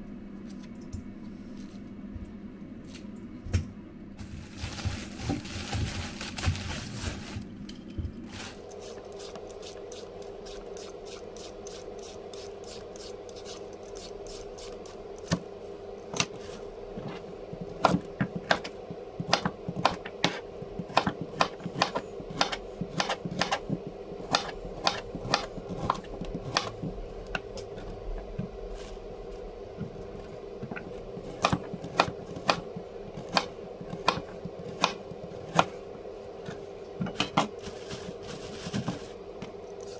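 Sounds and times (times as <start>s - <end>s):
kitchen appliance hum: 0.0s - 39.9s
knife chopping on board: 19.3s - 26.8s.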